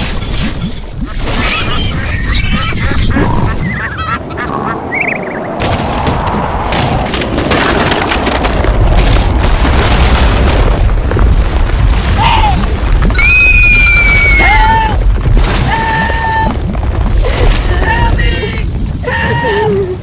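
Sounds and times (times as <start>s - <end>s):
high-pitched squealing cries: 13.2s - 15.0s.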